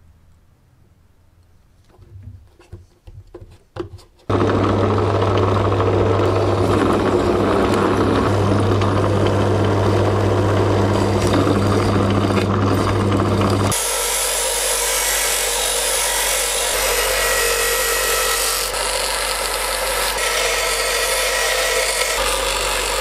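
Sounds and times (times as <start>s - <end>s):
drill press motor hum: 4.3s - 23.0s.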